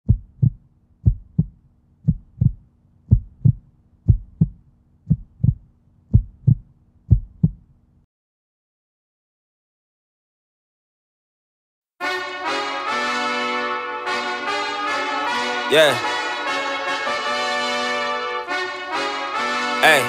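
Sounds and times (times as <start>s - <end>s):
heartbeat thumps: 0.0s - 7.7s.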